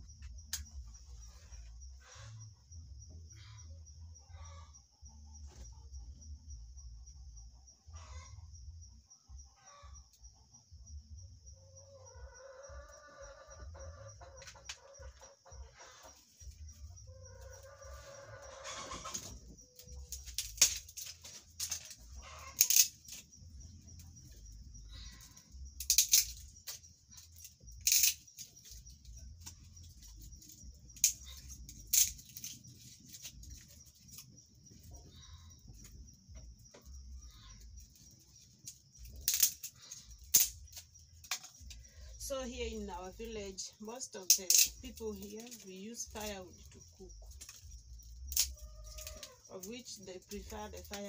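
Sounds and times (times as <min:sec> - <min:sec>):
chicken clucking: 0:11.9 - 0:20.0, 0:22.1 - 0:22.6.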